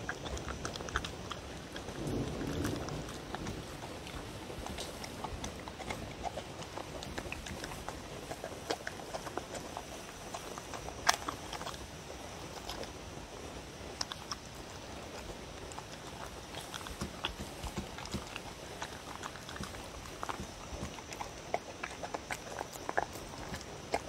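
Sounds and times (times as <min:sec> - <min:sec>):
dog chewing wet food: 0:00.0 - 0:24.0.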